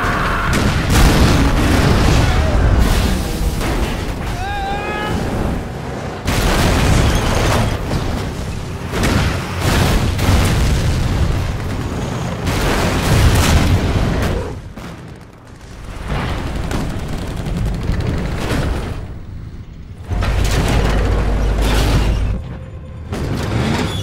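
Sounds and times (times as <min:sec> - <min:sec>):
explosions booming: 0:00.0 - 0:23.8
gunfire: 0:06.2 - 0:19.2.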